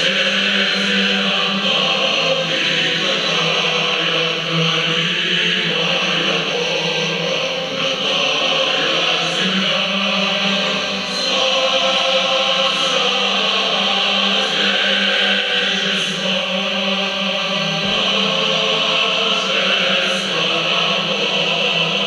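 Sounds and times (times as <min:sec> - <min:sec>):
choir singing on television: 0:00.0 - 0:22.0.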